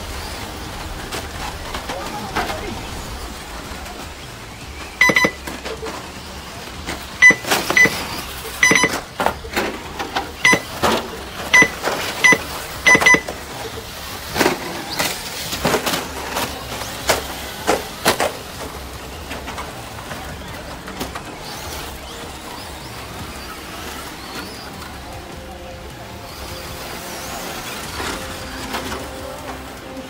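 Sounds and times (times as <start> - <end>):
rc cars running: 0.0 - 30.0
short electronic beeps: 5.0 - 5.5, 7.2 - 9.1, 10.4 - 10.8, 11.5 - 13.4.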